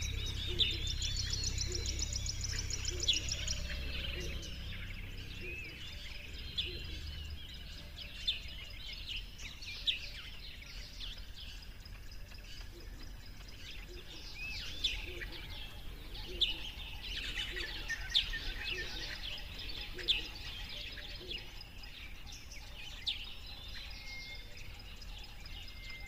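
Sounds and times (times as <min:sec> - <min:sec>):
low hum: 0:00.0 - 0:08.7
small birds chirping: 0:00.0 - 0:26.0.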